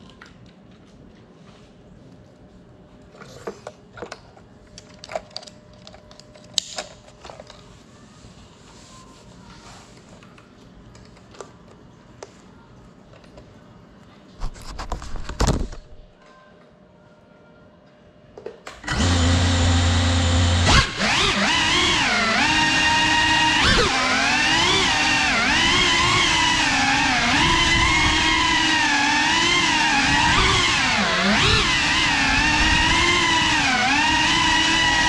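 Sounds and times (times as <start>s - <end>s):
drone motors whirring: 18.8s - 35.0s.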